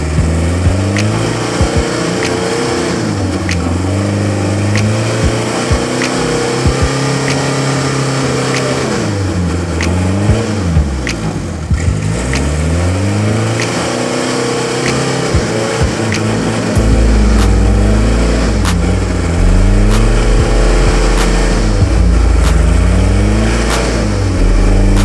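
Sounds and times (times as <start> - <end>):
sharp ticks: 0.0 - 4.0, 4.7 - 7.7, 9.8 - 14.0, 14.8 - 25.0
truck diesel engine revving: 0.0 - 25.0.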